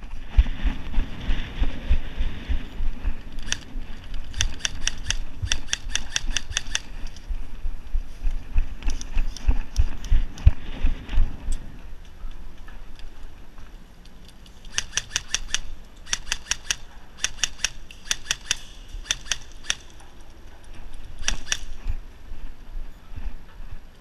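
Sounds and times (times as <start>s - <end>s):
airsoft gun firing: 4.3s - 6.9s, 14.7s - 20.0s, 21.2s - 21.8s.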